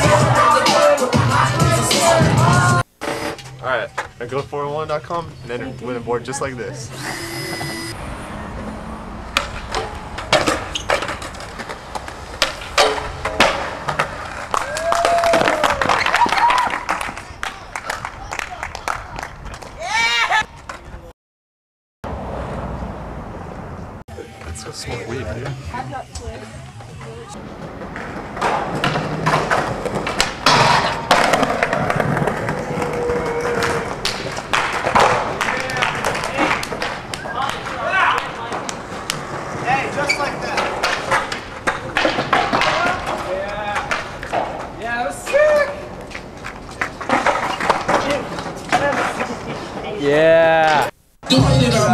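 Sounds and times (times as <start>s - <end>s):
skateboard clacking on concrete: 27.4s - 49.6s.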